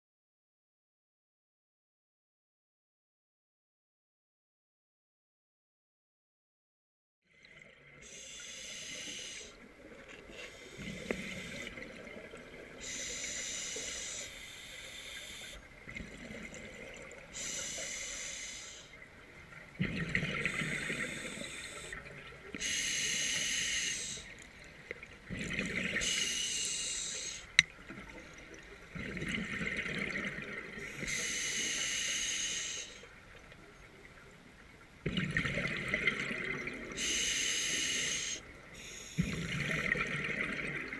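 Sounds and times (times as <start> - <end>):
scuba regulator breathing: 8.0 - 9.6, 10.3 - 11.8, 12.8 - 15.6, 17.3 - 19.0, 20.4 - 22.0, 22.6 - 24.3, 26.0 - 27.6, 30.8 - 33.1, 37.0 - 39.4.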